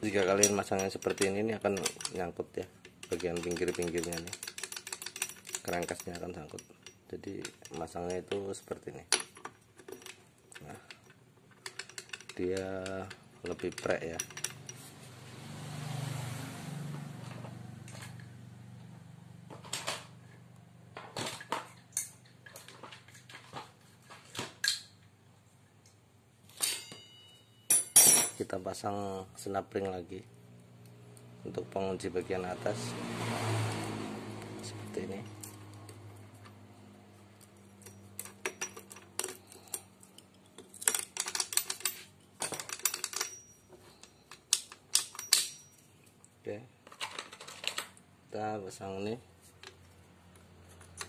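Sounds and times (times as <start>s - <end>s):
metal tools clinking: 0.0s - 14.9s, 26.5s - 28.5s, 37.4s - 46.2s, 50.6s - 51.0s
metallic clicks of engine parts: 0.0s - 14.9s, 21.7s - 23.4s, 34.4s - 48.0s, 49.6s - 51.0s.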